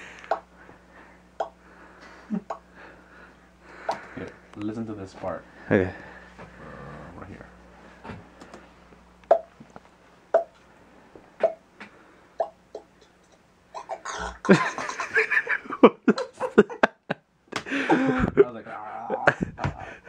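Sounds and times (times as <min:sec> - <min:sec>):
mouth pops: 0:01.4 - 0:01.6, 0:09.2 - 0:09.6, 0:10.3 - 0:10.6, 0:11.4 - 0:11.6, 0:12.4 - 0:14.1.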